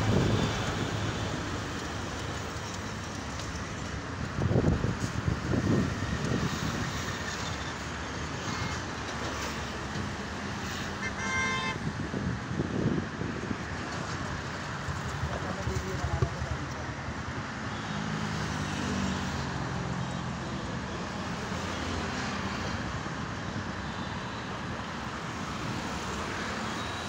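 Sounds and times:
vehicles rushing past: 0.0 - 8.4
highway traffic noise: 0.0 - 27.0
vehicle horn toot: 11.0 - 11.8.

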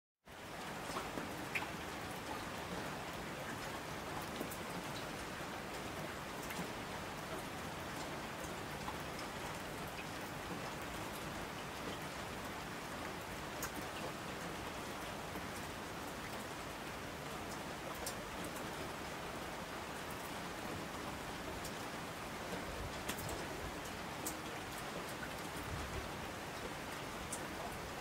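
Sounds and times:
steady rain hiss: 0.3 - 28.0
raindrops ticking: 17.5 - 18.7, 22.4 - 25.6.

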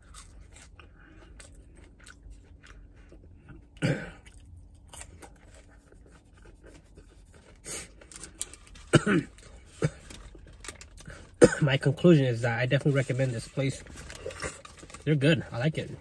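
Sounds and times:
close-up chewing: 0.0 - 11.4.

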